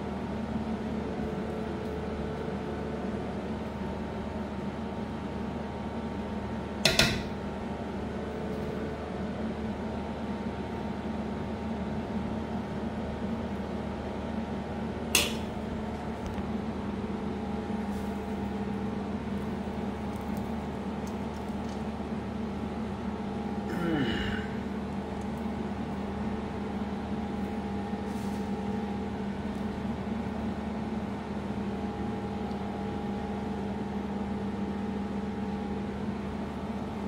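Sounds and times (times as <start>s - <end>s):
kitchen hum: 6.6s - 8.8s, 14.9s - 30.7s.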